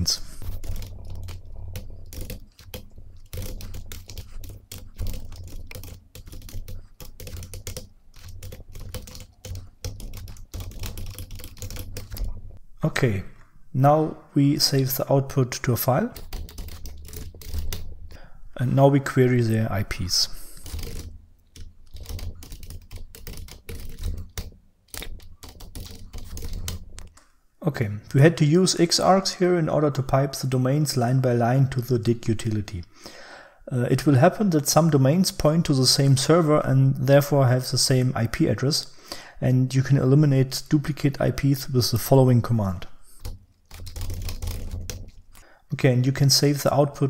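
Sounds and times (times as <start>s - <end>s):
typing on keyboard: 0.1s - 12.4s, 16.1s - 18.0s, 20.4s - 27.1s, 43.1s - 45.4s.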